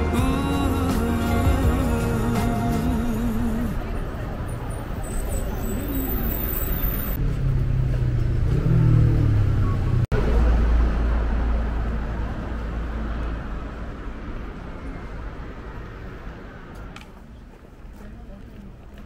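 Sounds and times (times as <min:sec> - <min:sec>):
passing traffic rumble: 0:00.0 - 0:18.9.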